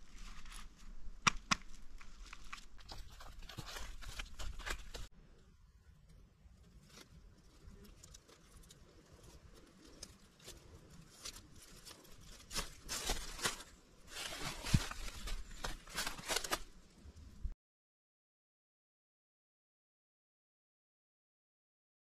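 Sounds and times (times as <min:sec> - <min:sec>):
rustling of dry sticks and leaves: 0:00.0 - 0:05.1, 0:06.0 - 0:17.5
sticks cracking: 0:01.2 - 0:05.1.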